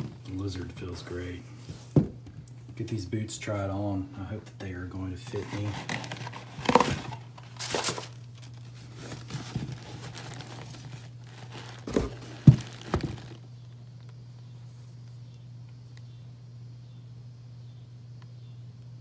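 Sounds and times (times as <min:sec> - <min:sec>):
low steady hum: 0:00.0 - 0:19.0
paper and cardboard crinkling: 0:05.2 - 0:13.4.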